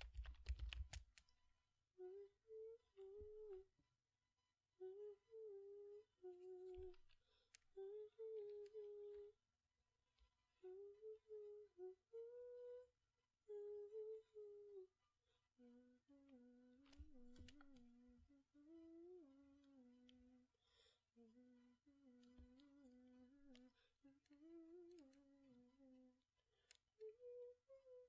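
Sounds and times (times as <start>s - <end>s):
keyboard key clicks: 0.0s - 1.1s
woman softly humming: 2.0s - 3.7s, 4.8s - 7.1s, 7.7s - 9.4s, 10.6s - 15.0s, 15.6s - 28.0s.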